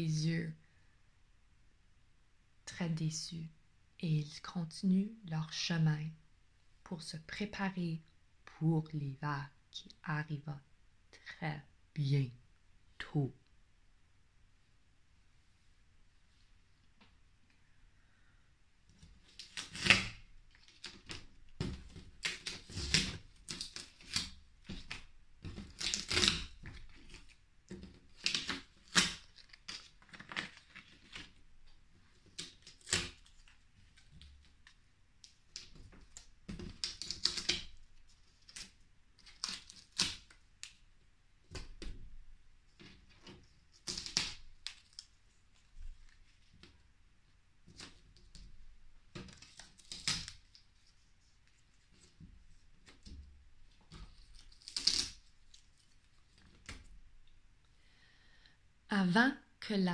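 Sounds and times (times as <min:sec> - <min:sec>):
paper rustling and crinkling: 0:19.0 - 0:31.4, 0:42.7 - 0:46.8, 0:47.6 - 0:57.0.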